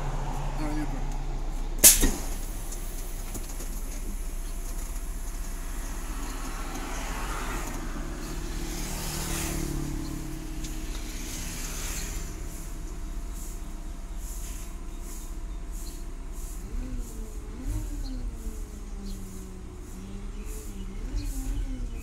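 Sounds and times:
low engine hum: 0:00.0 - 0:22.0
compressed air hissing: 0:01.8 - 0:03.3, 0:05.1 - 0:17.5.

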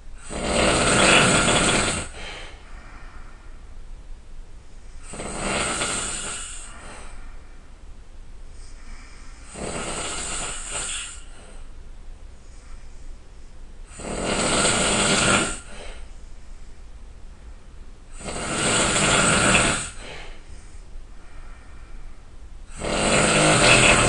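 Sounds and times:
faint low hum: 0:00.0 - 0:14.8, 0:15.6 - 0:24.0
person snoring loudly: 0:00.2 - 0:02.4, 0:05.0 - 0:06.9, 0:09.4 - 0:11.3, 0:13.9 - 0:16.0, 0:18.1 - 0:20.3, 0:22.7 - 0:24.0.

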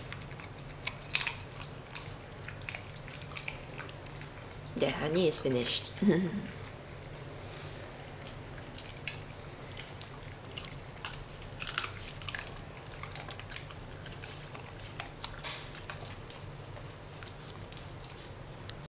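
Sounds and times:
dog crunching bone: 0:00.0 - 0:04.8, 0:06.6 - 0:18.8.

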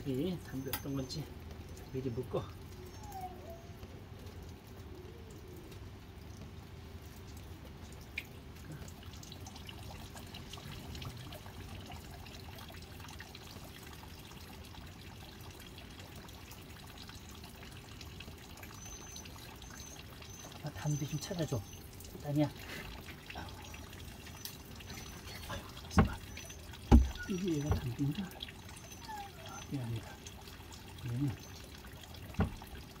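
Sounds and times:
puppies suckling: 0:02.6 - 0:04.0, 0:18.8 - 0:33.0.

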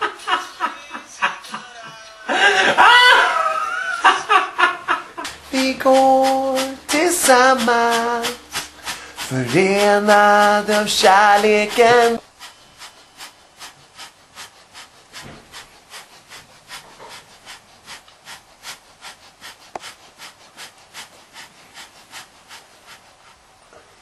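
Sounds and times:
faint scraping strokes: 0:05.2 - 0:23.6.

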